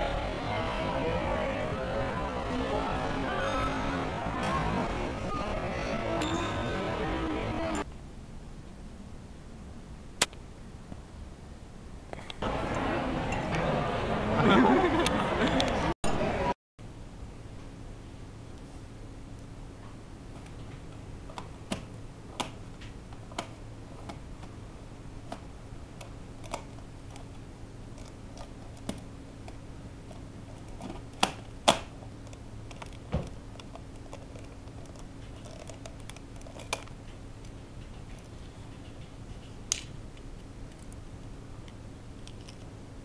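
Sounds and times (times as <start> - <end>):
steady low hum: 0.0 - 43.0.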